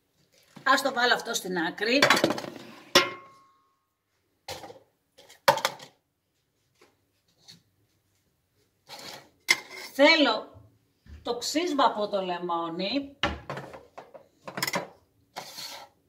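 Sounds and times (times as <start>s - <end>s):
pan scraping on wooden counter: 8.9s - 10.0s, 15.3s - 16.0s.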